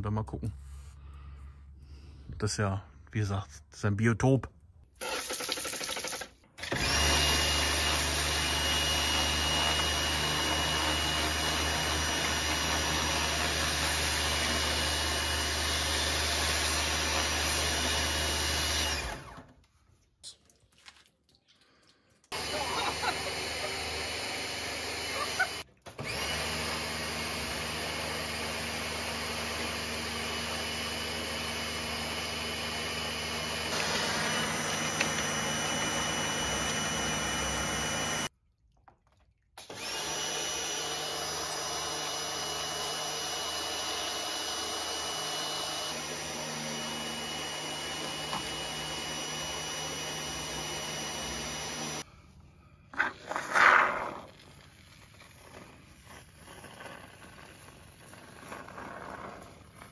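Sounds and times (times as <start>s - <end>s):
motor whining and humming: 6.6s - 19.4s, 22.3s - 38.3s, 39.7s - 52.0s.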